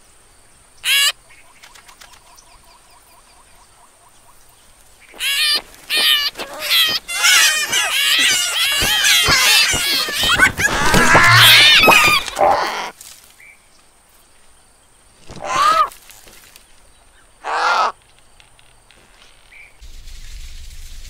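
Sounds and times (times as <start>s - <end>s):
cartoon chicks squealing and chirping: 0.8s - 1.1s, 5.2s - 12.9s, 15.3s - 15.9s
harsh caw-like bird calls: 5.1s - 12.9s, 15.3s - 15.9s, 17.4s - 18.0s.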